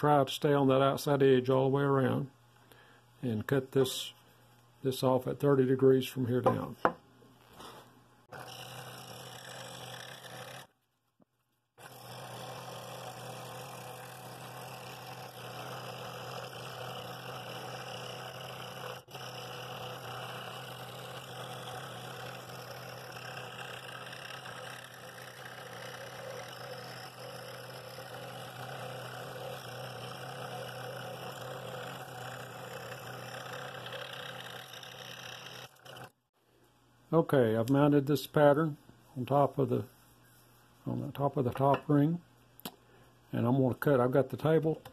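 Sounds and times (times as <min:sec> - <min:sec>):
scroll saw cutting wood: 0:08.3 - 0:10.8, 0:11.8 - 0:36.2.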